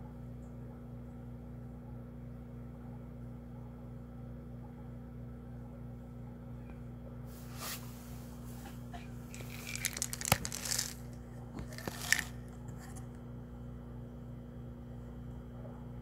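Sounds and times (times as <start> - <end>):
steady low hum: 0.0 - 16.0
crinkling and rustling: 7.4 - 13.2.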